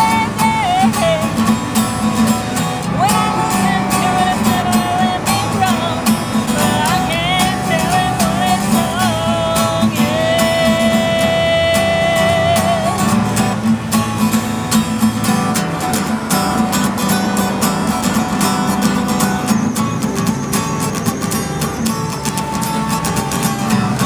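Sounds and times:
person singing: 0.0s - 1.8s, 2.8s - 13.4s
strummed acoustic guitar: 0.0s - 24.0s.

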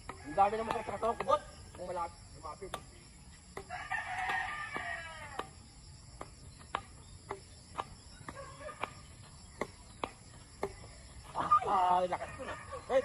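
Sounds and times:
rooster crowing: 0.1s - 1.6s, 3.6s - 5.5s.

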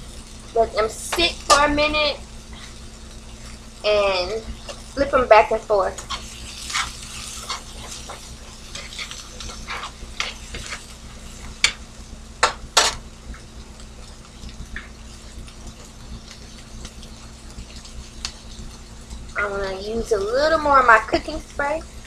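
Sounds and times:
onions sizzling in a skillet: 0.0s - 22.0s
spatula scraping and tapping pan: 6.0s - 10.9s, 12.4s - 13.0s.

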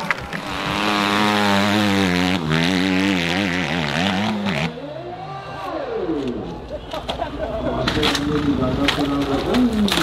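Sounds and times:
dirt bike engine revving: 0.0s - 4.8s.

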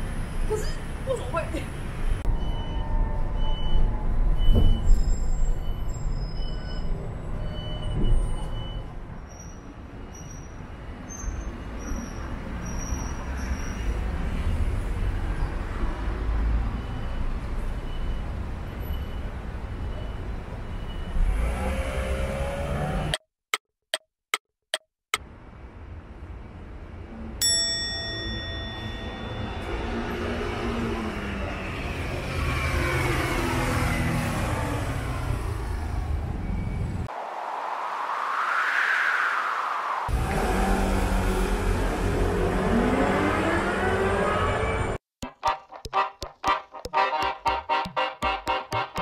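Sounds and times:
street traffic passing: 0.0s - 23.2s, 25.2s - 38.2s, 39.4s - 49.0s.

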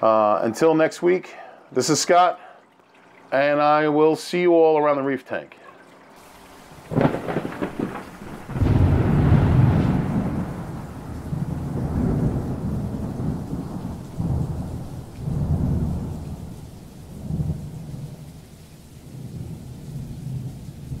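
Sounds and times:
rain: 5.8s - 21.0s
low rolling thunder: 6.6s - 21.0s.

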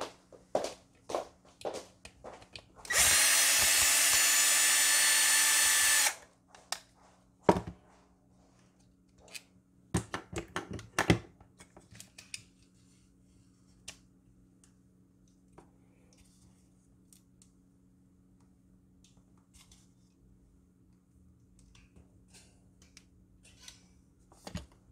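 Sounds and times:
cordless drill running: 2.9s - 6.2s.

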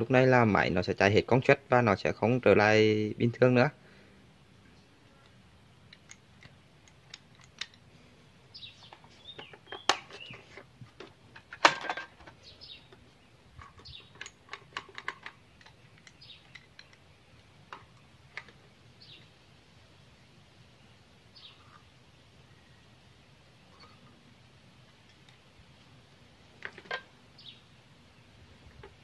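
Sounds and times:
birds chirping: 0.1s - 29.0s.

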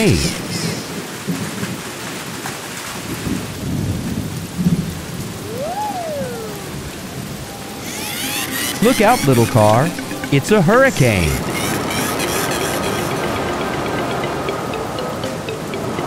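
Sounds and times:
steady rain: 0.0s - 15.8s
whistling tone: 5.5s - 6.8s.

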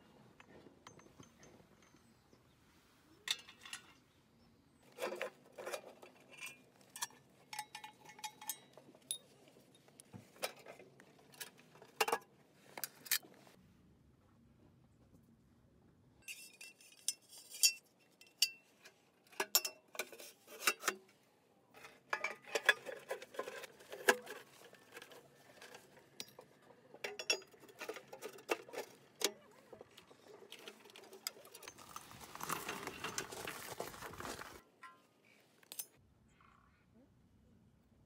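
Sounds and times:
steel parts clinking and knocking: 0.4s - 2.3s, 3.3s - 4.0s, 4.9s - 13.2s, 16.2s - 21.0s, 21.8s - 35.0s, 35.6s - 36.0s
scraping rustle: 27.6s - 34.6s.

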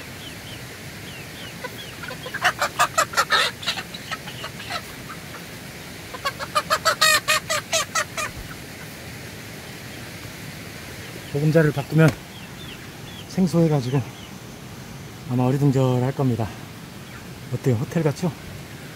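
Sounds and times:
chickens calling: 0.0s - 18.9s.

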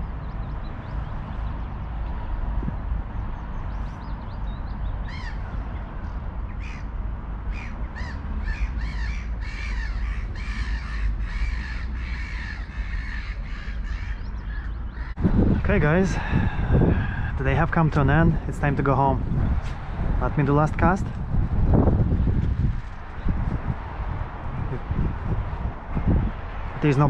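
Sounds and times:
wind rumble on microphone: 0.0s - 27.0s
bird calling: 3.6s - 5.9s, 6.5s - 6.9s, 7.5s - 15.2s.

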